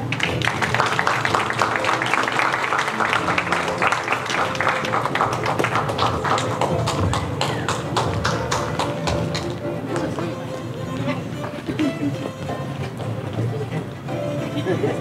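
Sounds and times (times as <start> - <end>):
people clapping: 0.0 - 13.0.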